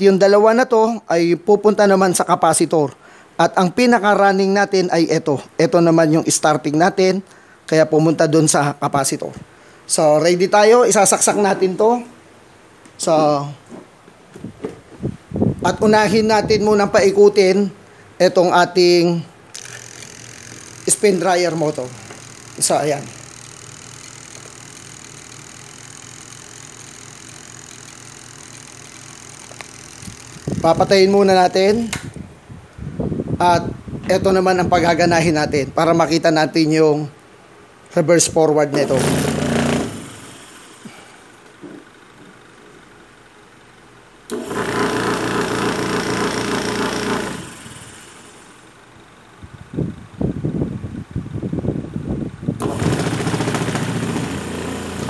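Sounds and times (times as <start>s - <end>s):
electric motor humming: 19.5s - 32.2s, 38.7s - 41.6s, 44.3s - 48.8s, 52.6s - 55.0s
washing machine switch click: 31.9s - 32.2s.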